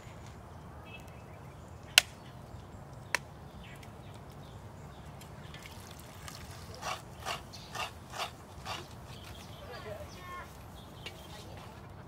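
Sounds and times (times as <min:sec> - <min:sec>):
coconut water splashing into dipper: 0:05.5 - 0:07.4.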